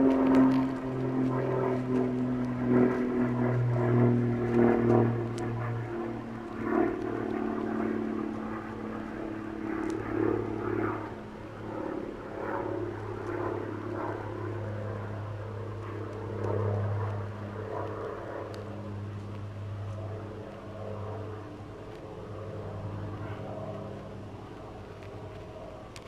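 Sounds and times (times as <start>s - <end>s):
low engine-like drone: 0.0s - 26.0s
faint sharp clicks: 9.8s - 10.1s, 15.7s - 19.4s.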